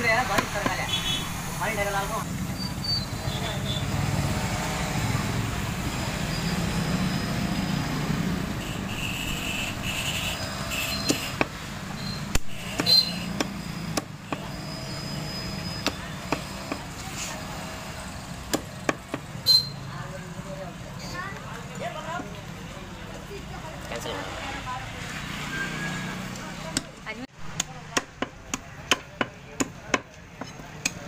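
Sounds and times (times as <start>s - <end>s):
knife chopping on wooden block: 12.3s - 14.5s, 15.8s - 16.9s.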